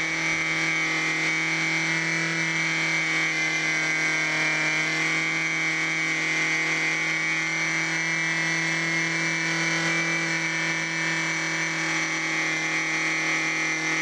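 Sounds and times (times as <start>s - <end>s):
model engine buzzing: 0.0s - 14.0s.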